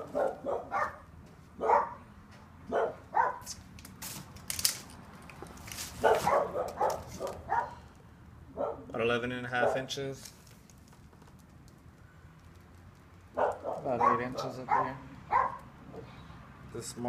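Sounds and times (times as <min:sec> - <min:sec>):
dog barking: 0:00.0 - 0:02.0, 0:02.7 - 0:03.5, 0:06.0 - 0:07.8, 0:08.5 - 0:08.9, 0:09.6 - 0:09.9, 0:13.4 - 0:16.1.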